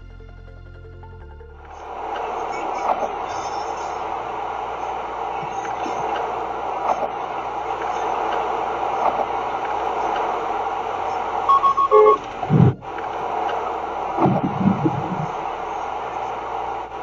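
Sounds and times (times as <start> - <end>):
road and tyre noise inside car: 1.7 - 17.0
collision warning beeps: 11.5 - 12.8.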